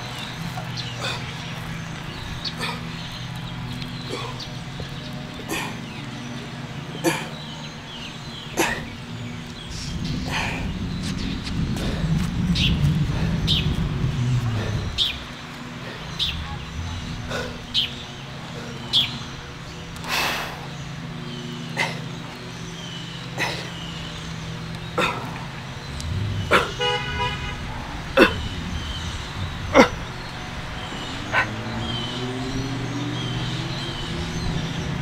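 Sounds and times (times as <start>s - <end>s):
vehicle passing: 0.0s - 35.0s
car horn toot: 26.6s - 27.7s.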